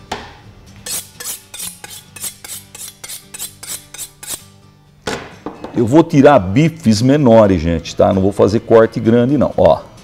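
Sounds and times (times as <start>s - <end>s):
knife scraping on sharpening rod: 0.8s - 4.5s.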